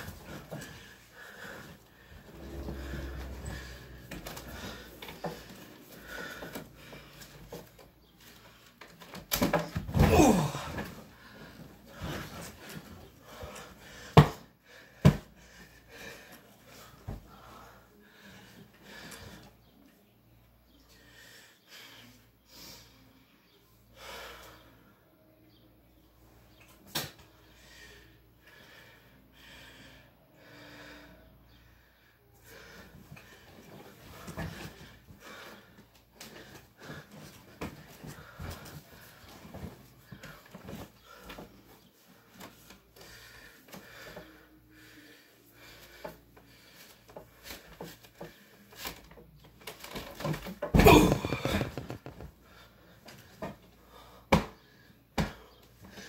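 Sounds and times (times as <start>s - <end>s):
person breathing heavily: 0.0s - 7.4s, 27.4s - 37.4s, 42.9s - 47.2s
bed creaking: 1.4s - 6.8s, 49.7s - 52.4s
bedding rustling: 50.8s - 52.4s.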